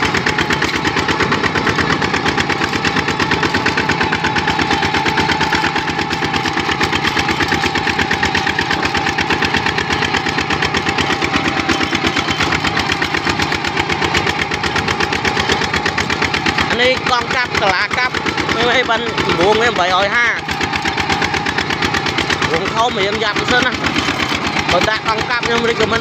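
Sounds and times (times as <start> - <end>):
diesel engine chugging: 0.0 - 26.0.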